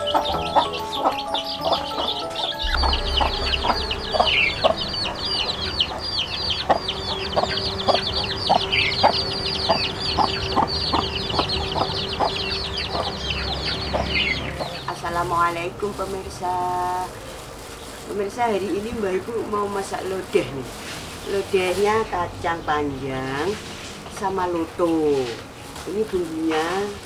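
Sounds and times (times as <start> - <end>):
hen clucking: 0.0 - 15.2
chicks peeping: 0.0 - 20.4.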